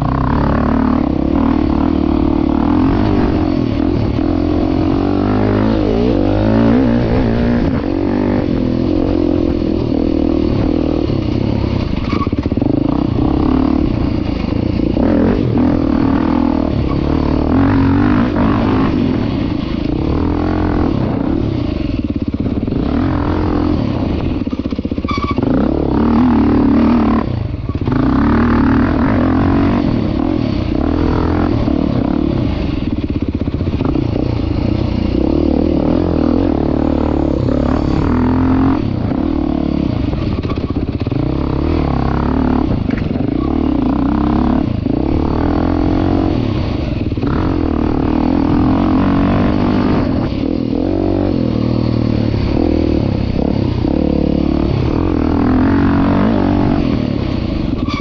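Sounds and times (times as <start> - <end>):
dirt bike engine revving: 0.0 - 58.0
clatter from motorbike: 11.3 - 13.1, 24.4 - 25.5, 40.1 - 41.2, 42.6 - 43.7.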